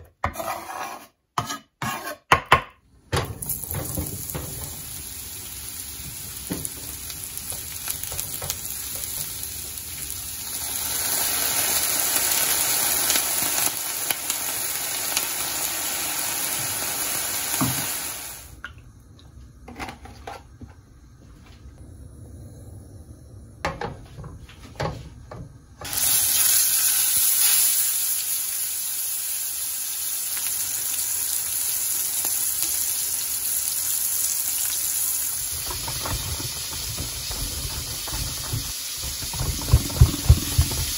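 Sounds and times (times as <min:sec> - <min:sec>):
mushrooms sizzling in a pan: 0:03.3 - 0:18.6, 0:25.8 - 0:40.9
steak searing in hot oil: 0:03.4 - 0:18.6, 0:25.8 - 0:40.9.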